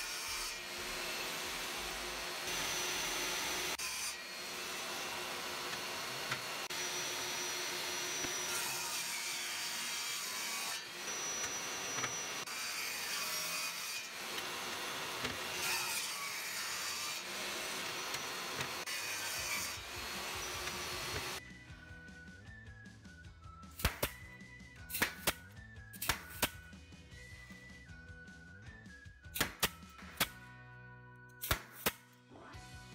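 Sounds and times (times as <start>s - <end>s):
power saw cutting boards: 0.0s - 21.4s
saw blade high whine: 0.4s - 13.5s, 16.7s - 21.4s.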